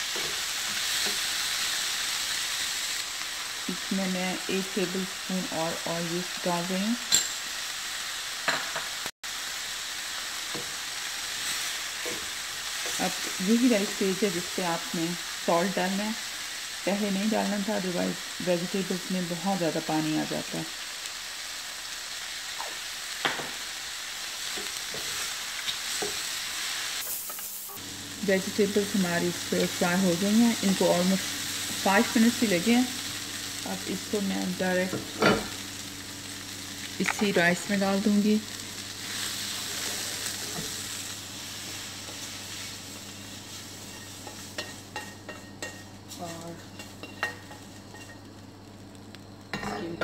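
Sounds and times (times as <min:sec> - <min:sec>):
vegetables sizzling in a frying pan: 0:00.0 - 0:50.0
spatula stirring and tossing: 0:41.6 - 0:48.2
metal spoon clinking against pan: 0:46.8 - 0:48.2.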